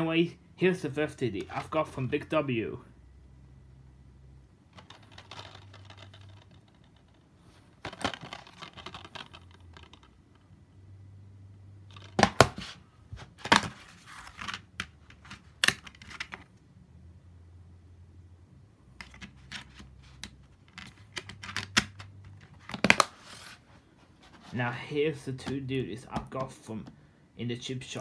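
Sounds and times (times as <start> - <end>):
plastic dvd case clicks and snaps: 14.4 - 16.4, 20.8 - 23.1.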